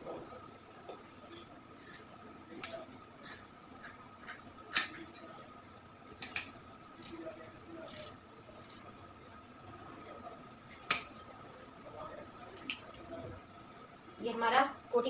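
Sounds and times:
scissors cutting cloth: 0:07.9 - 0:08.9.

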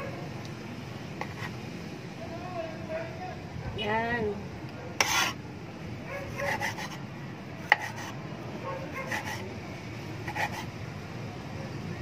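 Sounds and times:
soft rubbing and scraping: 0:01.2 - 0:01.6, 0:05.0 - 0:05.4, 0:06.3 - 0:07.0, 0:09.0 - 0:09.5, 0:10.3 - 0:10.7
cleaver slicing tomato: 0:05.0 - 0:05.4, 0:06.3 - 0:07.0, 0:07.6 - 0:08.2, 0:08.9 - 0:09.5, 0:10.3 - 0:10.7.

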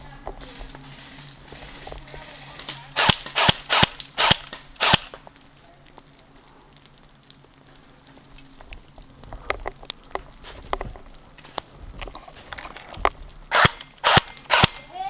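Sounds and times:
faint clicks: 0:00.2 - 0:14.9
airsoft rifle shots: 0:02.6 - 0:05.2, 0:13.5 - 0:14.9.

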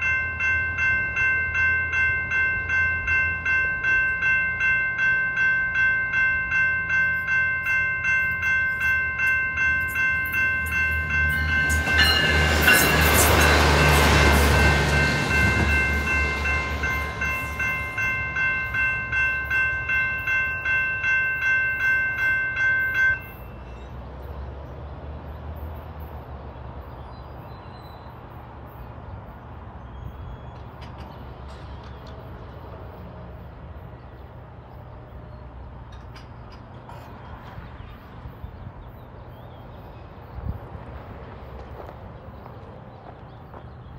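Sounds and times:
electronic crossing bells dinging: 0:00.0 - 0:23.8
train passing: 0:00.0 - 0:43.9.

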